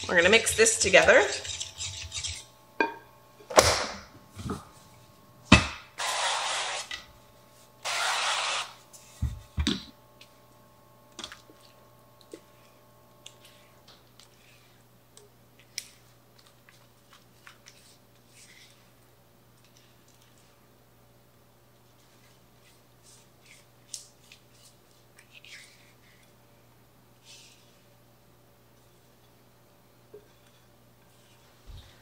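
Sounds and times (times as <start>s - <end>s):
spatula scraping glass bowl: 0.0s - 2.5s.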